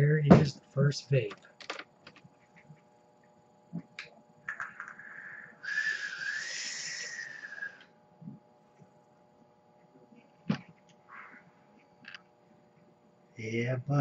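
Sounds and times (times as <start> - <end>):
air hissing with wavering whistle: 4.8 - 7.8.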